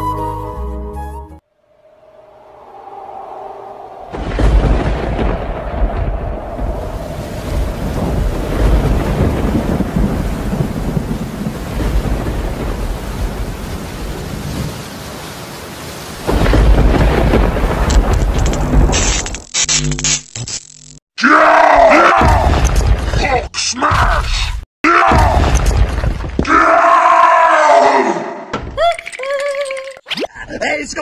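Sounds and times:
thunder rumbling: 0:01.6 - 0:15.2, 0:16.0 - 0:19.3
loud crack of thunder: 0:04.0 - 0:14.7, 0:16.2 - 0:19.0
steady rain: 0:04.2 - 0:19.5.

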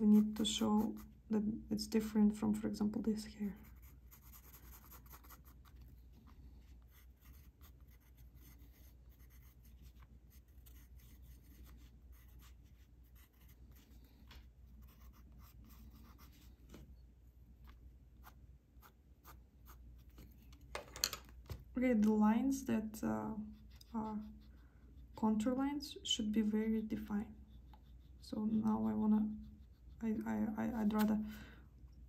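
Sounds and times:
pencil scratching on paper: 0:00.0 - 0:01.2, 0:03.5 - 0:05.8, 0:06.8 - 0:14.0, 0:14.8 - 0:16.5, 0:18.2 - 0:19.8, 0:23.4 - 0:25.5, 0:27.1 - 0:30.8.

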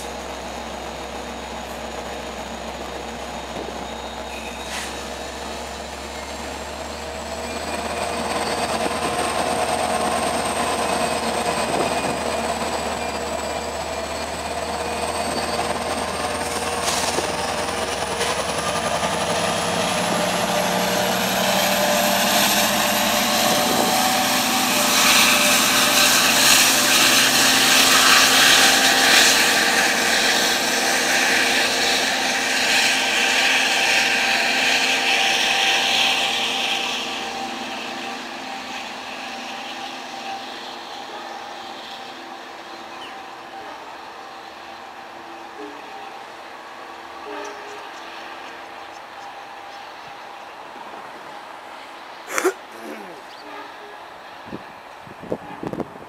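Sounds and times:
diesel locomotive engine under load: 0:00.0 - 0:56.0.

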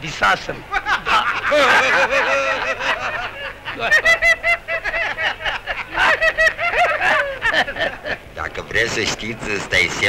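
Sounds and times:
group of men laughing: 0:00.7 - 0:08.4.

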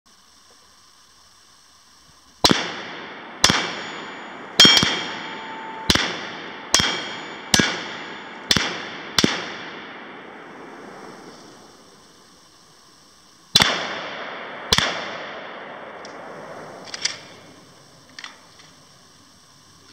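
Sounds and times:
rifle shots echoing: 0:02.4 - 0:10.8, 0:13.5 - 0:17.6
thin ringing: 0:03.7 - 0:08.5.

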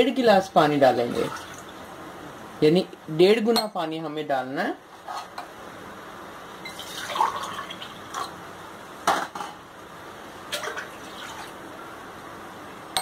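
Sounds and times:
water pouring into metal pan: 0:06.7 - 0:08.3, 0:10.5 - 0:11.6.

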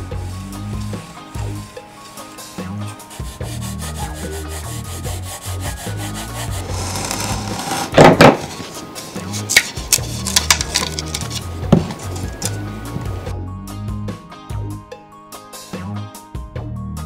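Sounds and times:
sanding block rubbing wood: 0:00.6 - 0:12.6
utility knife cutting rasp: 0:02.1 - 0:12.6.

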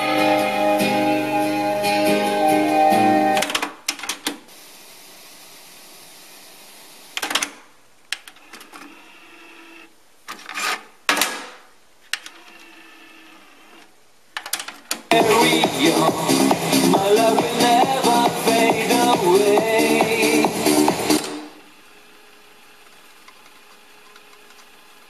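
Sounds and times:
cassette deck whirr: 0:00.0 - 0:04.5, 0:11.2 - 0:25.0
faint steady hiss: 0:00.0 - 0:08.9.

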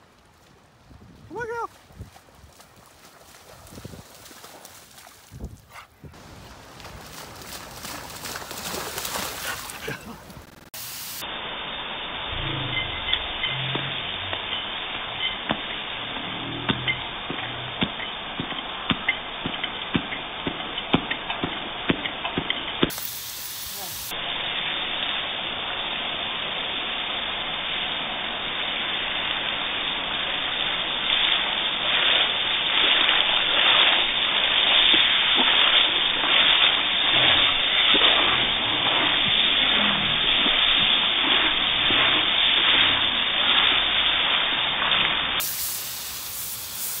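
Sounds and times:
water splashing: 0:00.0 - 0:11.3, 0:29.0 - 0:47.0
hose nozzle spray hissing: 0:09.6 - 0:11.2, 0:22.9 - 0:24.2, 0:45.4 - 0:47.0.

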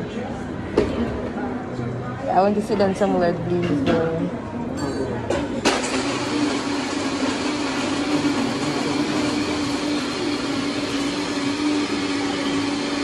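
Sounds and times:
electric blender running: 0:05.7 - 0:13.0.

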